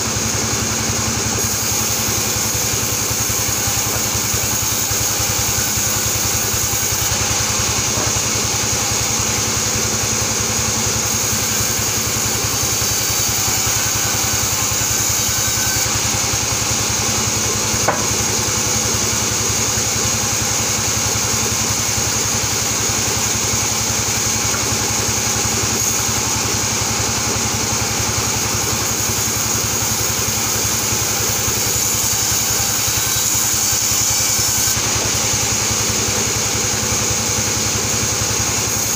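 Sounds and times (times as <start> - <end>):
band saw running with high whine: 0.0 - 38.9.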